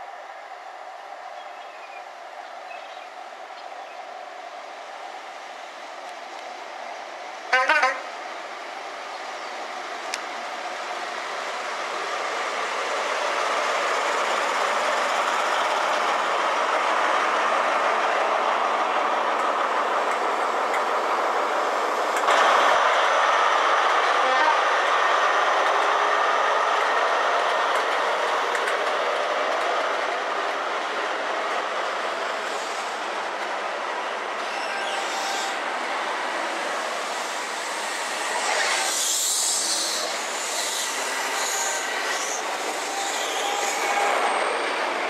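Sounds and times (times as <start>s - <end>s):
diesel train engine passing: 0.0s - 45.0s
wheels on rail clickety-clack: 19.4s - 23.2s, 23.8s - 33.6s.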